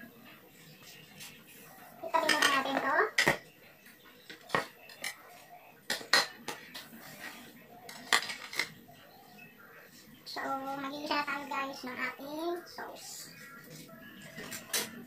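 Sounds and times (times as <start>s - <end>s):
ceramic plates clinking on counter: 2.1s - 3.4s, 4.2s - 5.3s, 5.9s - 6.9s, 7.9s - 8.8s.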